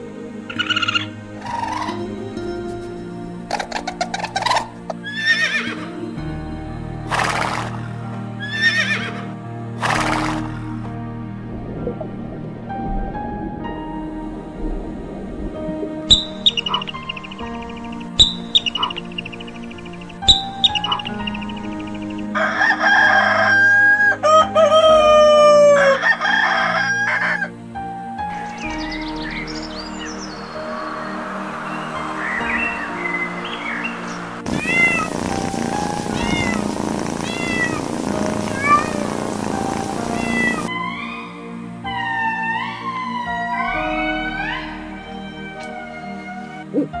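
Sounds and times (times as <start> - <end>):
background music: 0.0 - 47.0
breathy noisy burst: 34.4 - 40.7
animal high-pitched cry: 34.5 - 39.1, 39.9 - 41.0
long animal call: 34.5 - 47.0.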